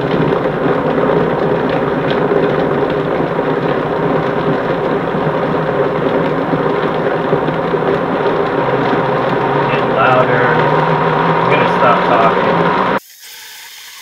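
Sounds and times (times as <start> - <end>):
blender motor grinding: 0.0 - 14.0.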